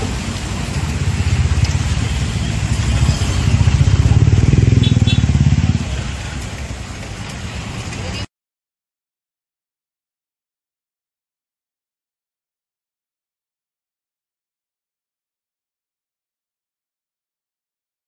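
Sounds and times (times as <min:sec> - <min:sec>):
motorbike engine running: 0:01.0 - 0:06.0.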